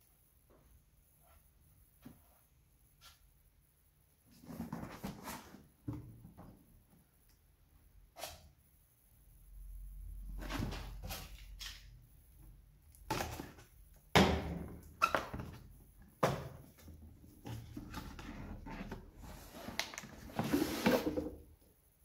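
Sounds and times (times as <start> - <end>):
cardboard box rubbing and scraping: 20.3 - 21.3.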